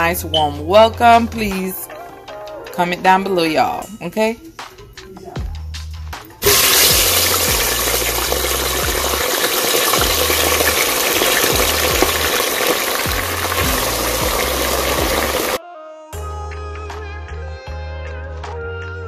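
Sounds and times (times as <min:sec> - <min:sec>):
food deep-frying in oil: 0:06.4 - 0:15.6.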